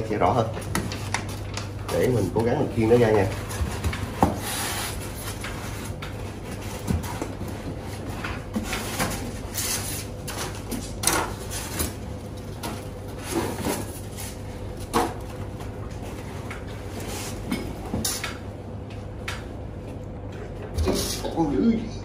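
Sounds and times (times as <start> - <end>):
foam and cardboard rustling: 13.0 - 14.9.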